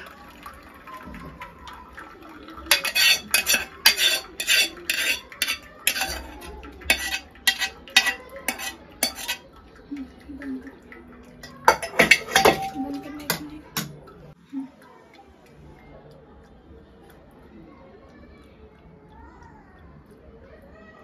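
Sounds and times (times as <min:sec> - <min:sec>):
metal utensil clinking on saucepan: 0:02.6 - 0:09.5, 0:11.3 - 0:14.0.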